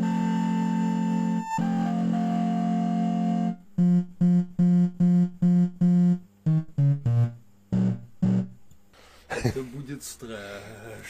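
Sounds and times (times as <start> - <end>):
electronic keyboard chords: 0.0 - 8.7.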